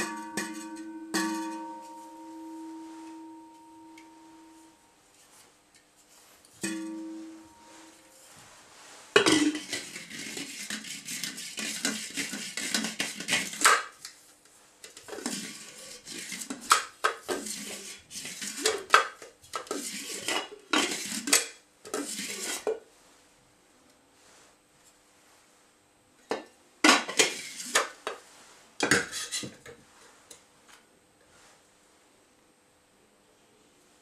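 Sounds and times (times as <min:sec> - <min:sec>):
faint metallic ring: 0:00.0 - 0:05.0, 0:06.6 - 0:08.3.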